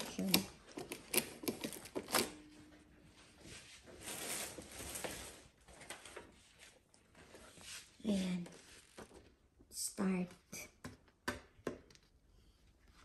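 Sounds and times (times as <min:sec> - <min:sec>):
plastic wrap and paper rustling: 0:03.2 - 0:09.5.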